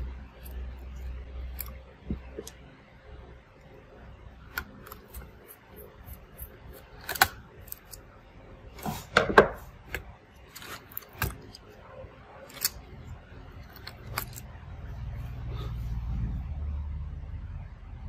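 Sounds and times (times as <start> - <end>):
low rumble: 14.6 - 18.0.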